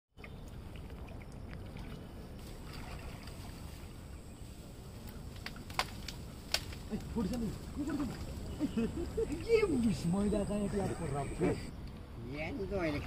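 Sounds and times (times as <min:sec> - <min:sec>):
water sloshing around wading people: 0:00.2 - 0:13.0.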